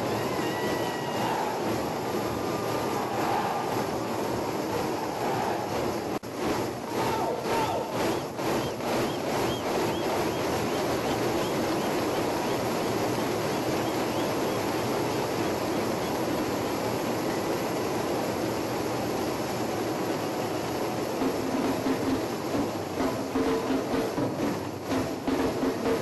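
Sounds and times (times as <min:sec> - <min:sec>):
many hand drums rumbling: 0:21.2 - 0:26.0.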